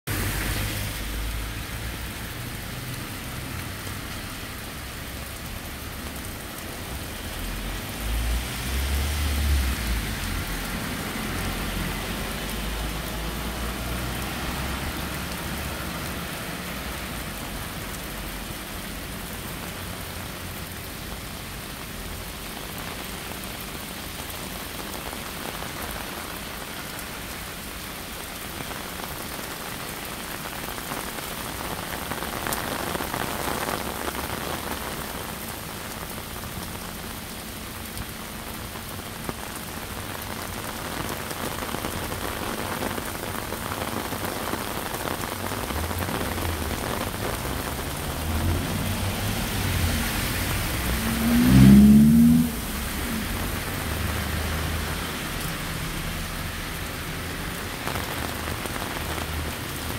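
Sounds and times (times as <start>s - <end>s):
heavy rain splashing into water: 0.1s - 59.9s.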